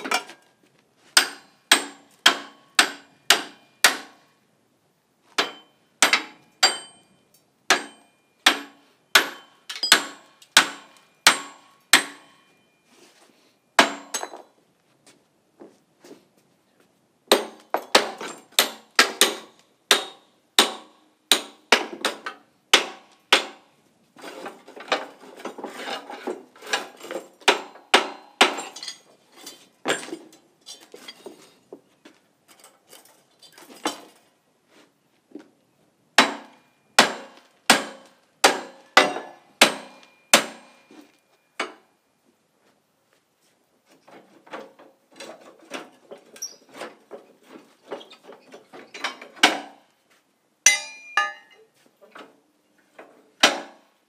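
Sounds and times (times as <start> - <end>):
hammer striking steel: 1.2 - 4.2, 5.4 - 7.1, 7.7 - 12.7, 13.8 - 14.4, 17.3 - 21.9, 36.2 - 40.9, 50.7 - 51.6.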